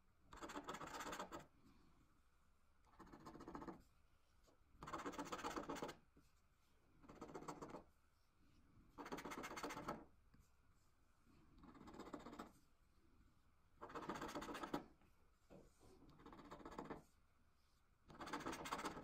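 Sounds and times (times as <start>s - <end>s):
scratch card being scratched: 0.4s - 1.4s, 2.9s - 3.8s, 4.8s - 6.0s, 7.1s - 7.8s, 9.0s - 10.0s, 11.6s - 12.5s, 13.8s - 14.9s, 16.2s - 17.0s, 18.1s - 19.0s.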